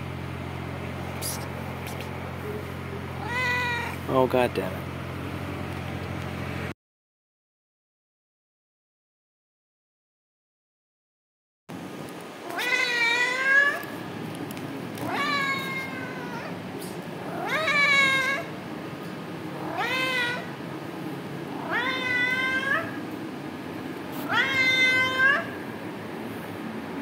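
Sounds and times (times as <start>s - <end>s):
cat meowing: 3.2s - 4.0s, 12.4s - 14.0s, 15.0s - 16.6s, 17.3s - 18.5s, 19.6s - 20.6s, 21.6s - 23.0s, 24.2s - 25.6s.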